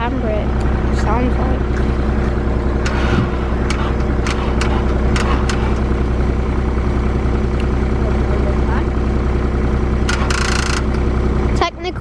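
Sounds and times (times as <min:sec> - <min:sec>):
car engine idling: 0:00.0 - 0:12.0
sharp irregular clicks: 0:02.8 - 0:05.9, 0:10.0 - 0:11.0.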